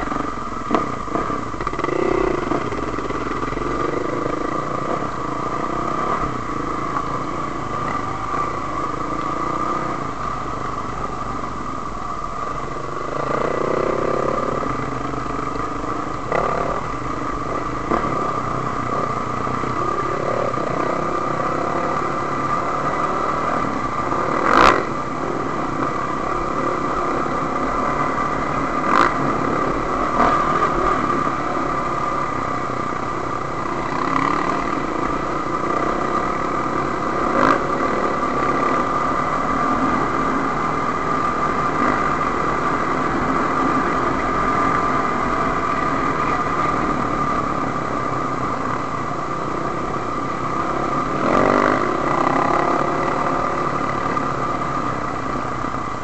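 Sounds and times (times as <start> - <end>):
dirt bike engine running: 0.0 - 9.9.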